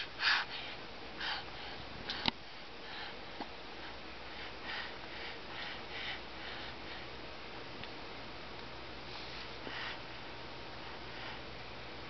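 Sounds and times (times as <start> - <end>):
soft breathing or sniffing: 0.0 - 7.2, 9.0 - 10.2.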